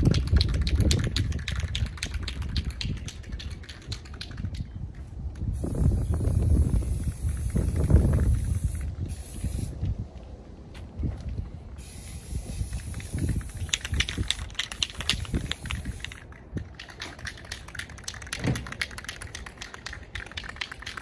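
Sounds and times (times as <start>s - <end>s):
aerosol can spraying: 5.6s - 9.8s, 11.8s - 16.3s.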